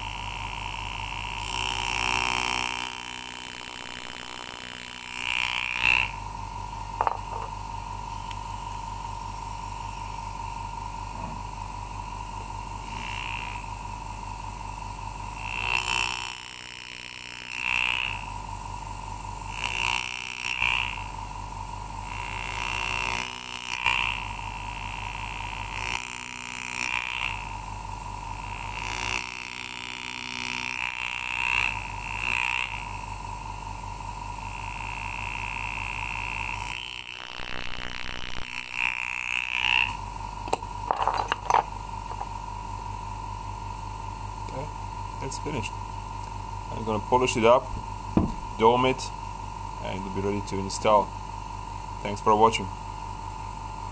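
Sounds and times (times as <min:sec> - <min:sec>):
graver cutting metal: 0:01.4 - 0:06.1, 0:36.5 - 0:42.4, 0:45.5 - 0:49.2
steady hum: 0:37.0 - 0:38.9, 0:39.8 - 0:53.9.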